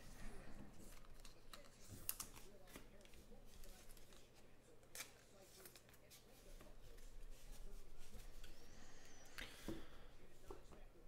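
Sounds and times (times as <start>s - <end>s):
card handling noise: 0.8s - 8.6s.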